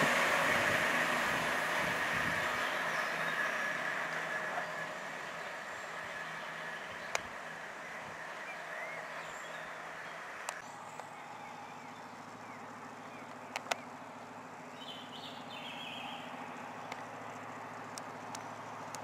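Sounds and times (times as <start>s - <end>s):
distant diesel train engine: 0.0s - 19.0s
small birds chirping: 1.8s - 19.0s
faint clicks: 13.2s - 13.9s, 16.8s - 17.1s.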